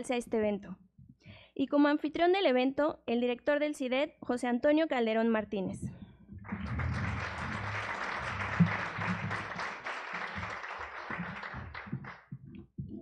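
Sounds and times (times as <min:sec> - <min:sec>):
audience applauding: 0:06.4 - 0:12.3.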